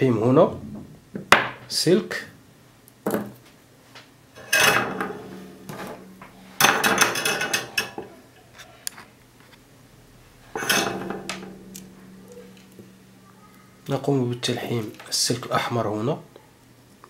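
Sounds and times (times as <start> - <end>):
tools clinking on a desk: 4.4 - 8.1, 10.5 - 14.0.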